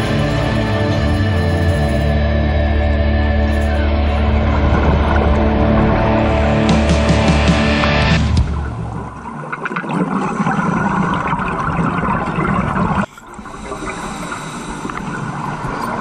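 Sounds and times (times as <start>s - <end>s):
water gurgling and bubbling: 4.2s - 7.1s, 7.8s - 16.0s.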